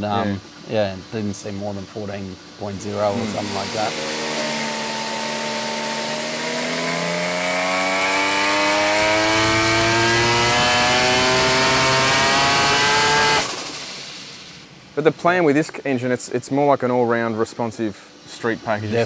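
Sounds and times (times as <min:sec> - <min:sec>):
rotary engine revving: 0:02.8 - 0:14.0.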